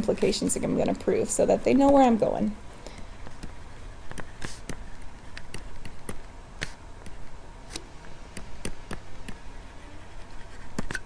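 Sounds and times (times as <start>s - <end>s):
faint low hum: 0.0s - 11.0s
stylus tapping on tablet screen: 2.9s - 9.4s.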